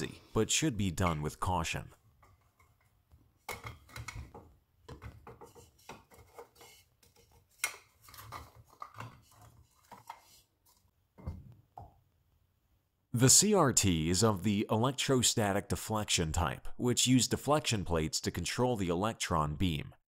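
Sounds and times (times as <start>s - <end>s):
clicks scrapes and knocks: 2.2s - 10.9s.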